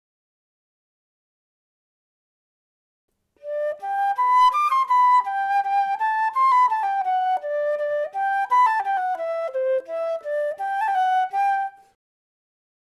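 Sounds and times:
wind instrument melody: 3.4s - 11.9s.

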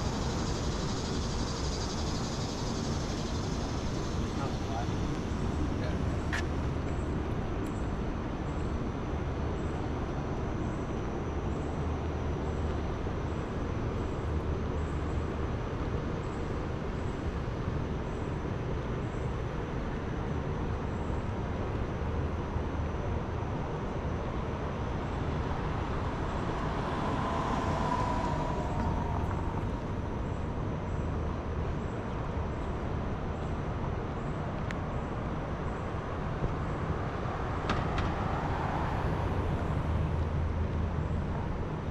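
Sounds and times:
traffic hum: 0.0s - 10.5s, 21.3s - 41.9s
vehicle passing: 24.5s - 31.1s, 36.6s - 41.0s.

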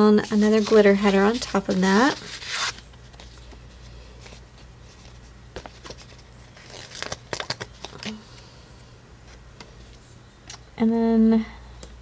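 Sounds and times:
steady low hum: 0.0s - 12.0s
paper rustling: 0.2s - 8.2s.

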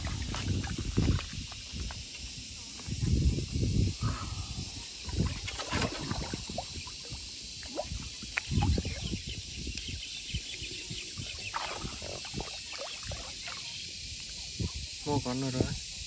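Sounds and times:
fish thrashing and splashing water: 0.0s - 1.5s, 5.1s - 8.9s, 11.4s - 13.7s.

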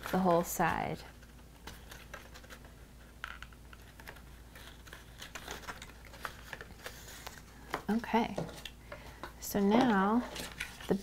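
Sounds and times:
stiff paper clicks and rustles: 0.0s - 2.8s, 3.4s - 8.8s.

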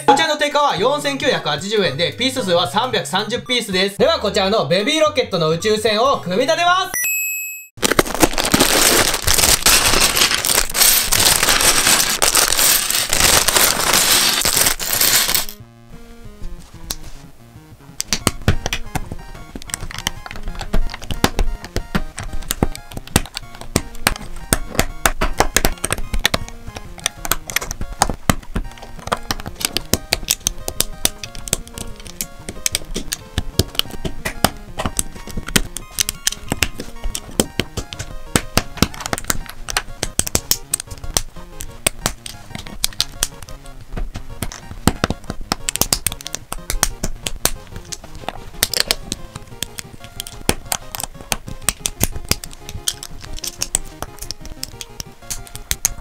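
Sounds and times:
quiet background music: 0.0s - 7.0s, 8.0s - 56.0s
plastic bag tearing and crinkling: 7.8s - 15.6s
plastic bricks clinking: 7.8s - 15.6s, 44.4s - 56.0s
small plastic clicks: 18.0s - 43.7s, 44.3s - 56.0s.

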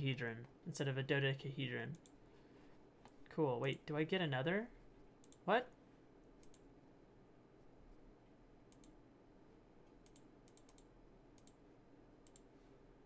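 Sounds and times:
faint computer clicks: 5.2s - 5.7s, 6.4s - 6.7s, 8.7s - 9.0s, 9.8s - 11.6s, 12.2s - 12.5s.

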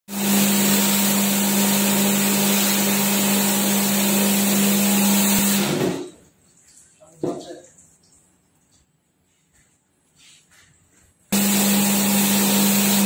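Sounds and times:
motor hum: 11.3s - 13.0s.

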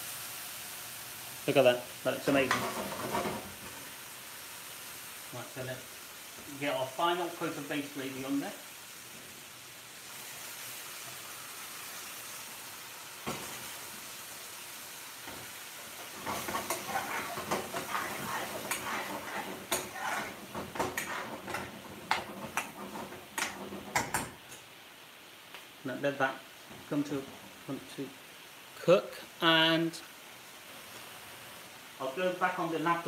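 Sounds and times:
curry sizzling in a frying pan: 0.0s - 33.0s
metal spoon scraping a pan: 16.1s - 24.4s.

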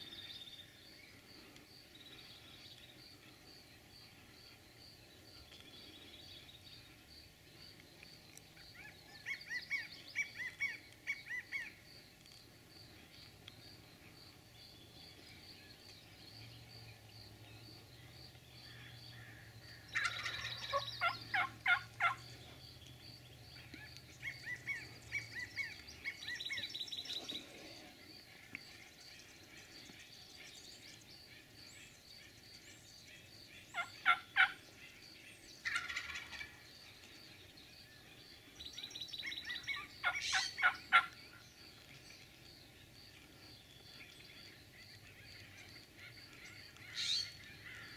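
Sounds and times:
turkey gobbling: 19.9s - 22.2s, 33.8s - 34.6s, 35.6s - 36.6s, 39.6s - 41.1s.

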